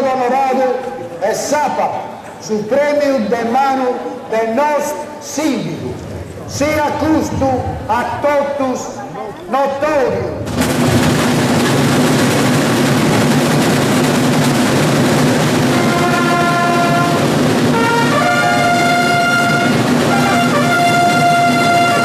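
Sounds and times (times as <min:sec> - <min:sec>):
side drums rolling: 0:10.3 - 0:22.0
trumpet fanfare: 0:15.4 - 0:22.0.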